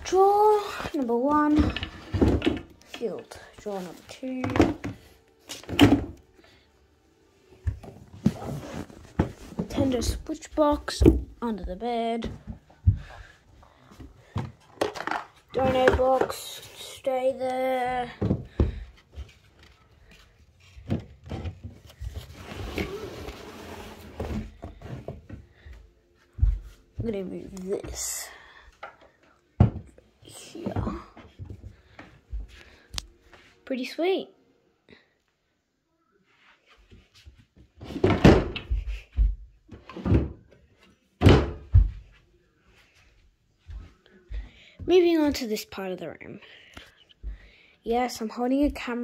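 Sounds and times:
objects knocking and thumping: 0.9s - 2.8s, 4.4s - 6.2s, 13.9s - 16.6s, 20.7s - 23.0s, 29.6s - 30.0s, 37.8s - 40.6s
knocks and thuds of objects: 4.4s - 5.0s, 37.8s - 40.4s, 41.2s - 42.0s.

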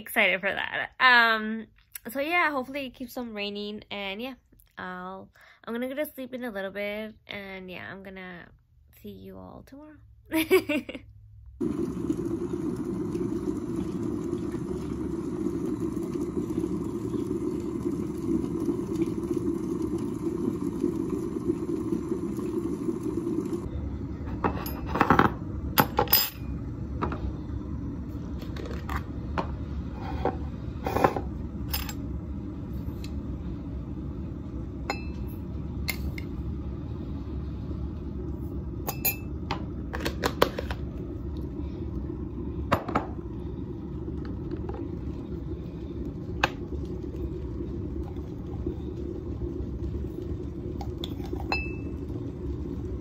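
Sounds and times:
kettle boiling: 11.6s - 53.0s.

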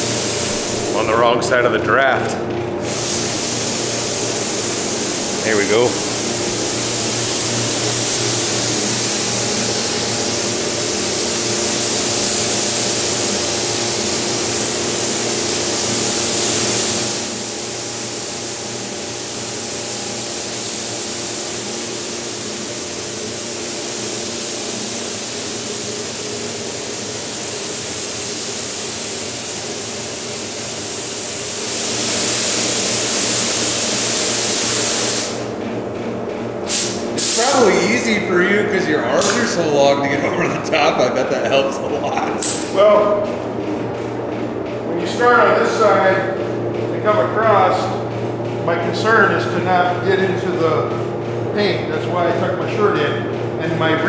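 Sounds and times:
spray gun hissing: 0.0s - 1.2s, 2.8s - 35.6s, 36.6s - 39.6s
ventilation hum: 0.0s - 54.0s.

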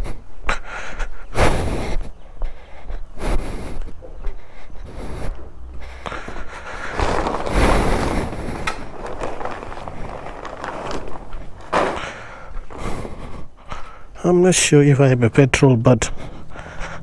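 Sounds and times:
footsteps on concrete: 1.5s - 14.0s
cloth cover rustling: 6.6s - 13.0s.

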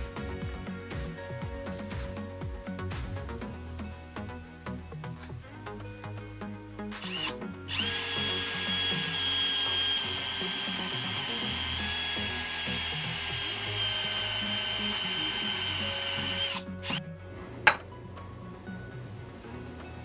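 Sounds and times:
cordless drill whining: 6.9s - 17.8s.

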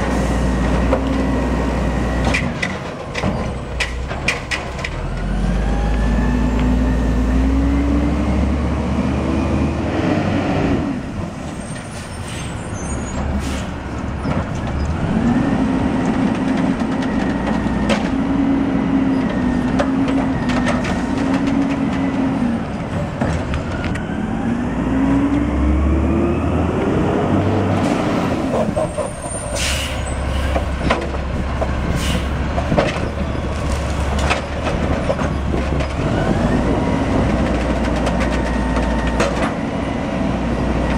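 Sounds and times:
diesel engine revving: 0.0s - 2.6s, 4.0s - 11.3s, 12.7s - 40.9s.

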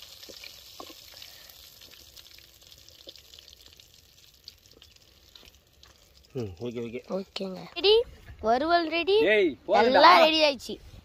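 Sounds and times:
fish frying in oil sizzle: 0.0s - 7.1s.

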